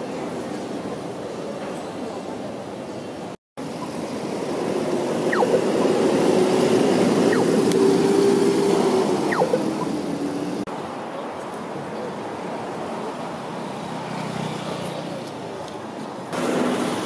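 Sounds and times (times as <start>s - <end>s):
road traffic passing: 0.0s - 17.0s
truck engine passing close: 3.7s - 10.7s.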